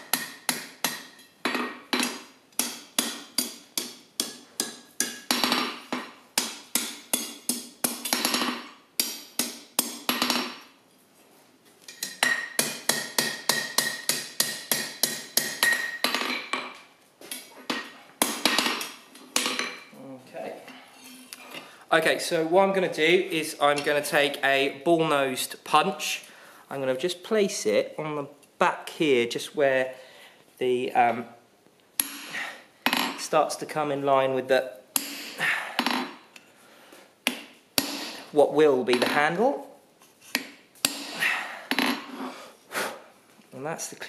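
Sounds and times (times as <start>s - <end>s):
hammer striking steel on anvil: 0.0s - 10.6s, 12.0s - 16.8s, 35.0s - 36.1s, 40.4s - 41.1s.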